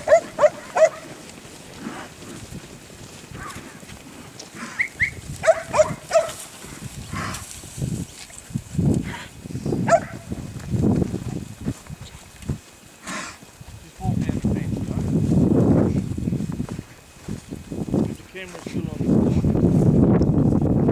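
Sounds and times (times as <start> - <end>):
dog barking: 0.0 - 1.1, 4.8 - 6.4, 9.8 - 10.3.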